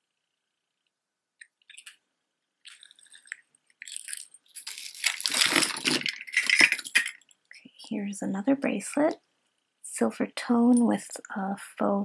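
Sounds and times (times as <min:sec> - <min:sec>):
jewelry clinking and rattling: 0:01.6 - 0:02.0, 0:02.6 - 0:07.5.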